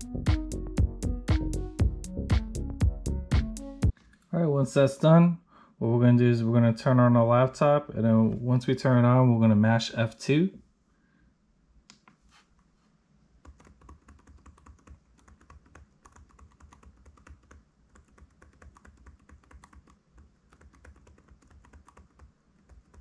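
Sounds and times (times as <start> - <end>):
laptop key tapping: 13.4 - 23.0.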